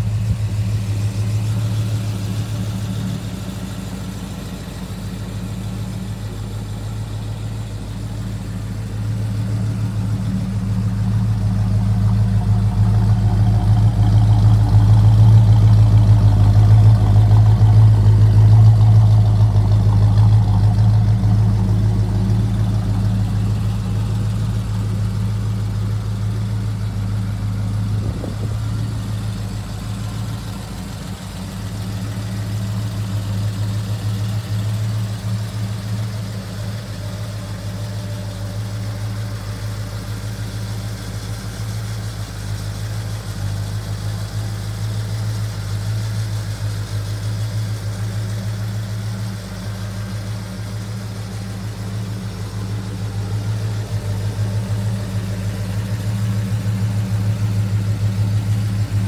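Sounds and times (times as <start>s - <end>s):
car engine idling: 0.0s - 59.0s.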